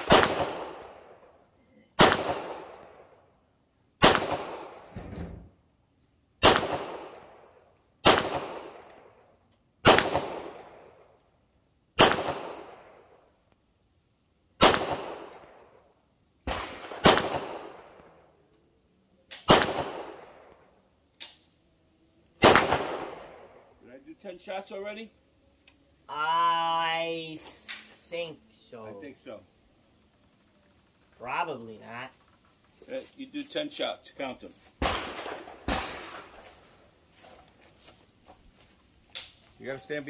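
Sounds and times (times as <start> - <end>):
pistol shots echoing: 0.0 - 1.2, 2.0 - 3.1, 4.0 - 4.9, 6.4 - 9.1, 9.8 - 10.8, 12.0 - 13.0, 14.6 - 15.7, 16.5 - 18.2, 19.4 - 20.6, 22.4 - 23.7, 34.8 - 36.5.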